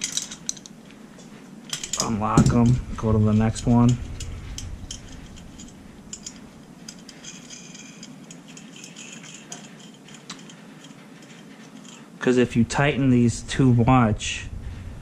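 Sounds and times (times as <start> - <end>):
metal nuts and tools clicking: 0.0 - 2.8, 3.5 - 12.1.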